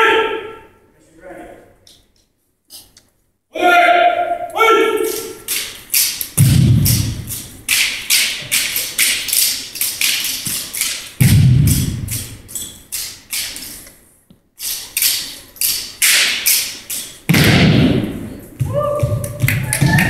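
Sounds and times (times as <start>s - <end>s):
sharp slaps and clacks: 5.0s - 13.7s, 15.0s - 20.0s
heavy thuds: 6.4s - 7.7s, 11.2s - 12.5s, 17.3s - 20.0s.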